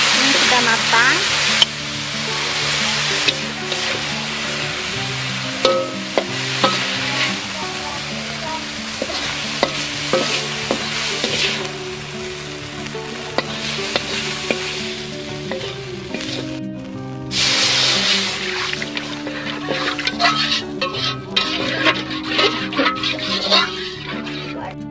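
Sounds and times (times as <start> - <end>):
water hissing in hot wok: 0.0 - 24.5
vegetables sizzling in a wok: 0.0 - 24.9
metal spatula scraping a pan: 0.2 - 11.8, 13.2 - 16.6, 17.3 - 24.7.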